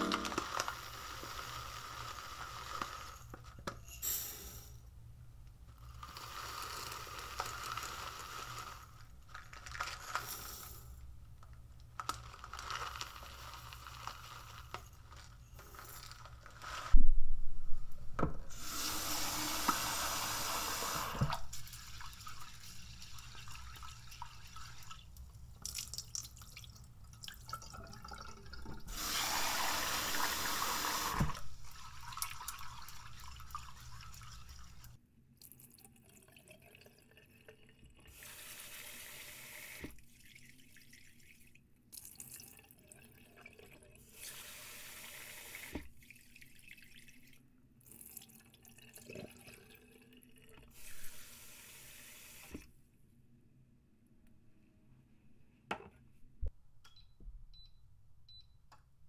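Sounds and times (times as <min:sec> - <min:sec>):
water poured into sink: 0:18.5 - 0:52.6.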